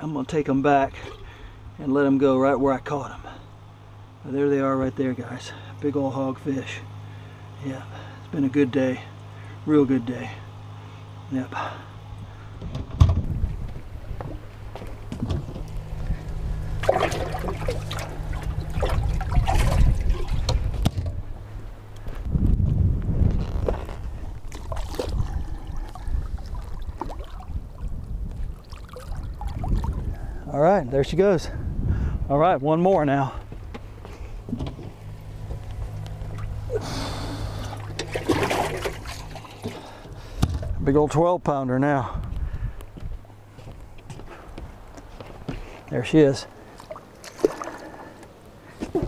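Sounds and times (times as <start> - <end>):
steady low hum: 0.0 - 49.0
water splashing: 16.2 - 21.2, 24.1 - 30.1, 35.8 - 40.1, 46.6 - 48.2.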